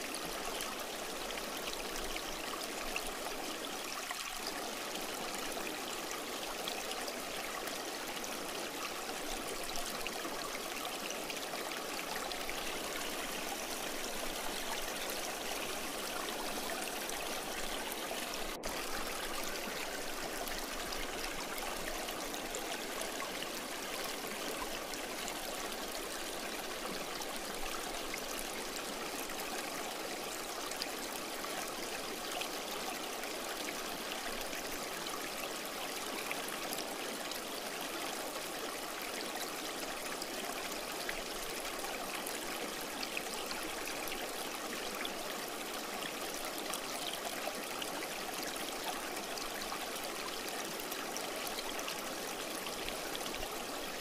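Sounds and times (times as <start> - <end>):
river water rushing over stones: 0.0 - 32.4.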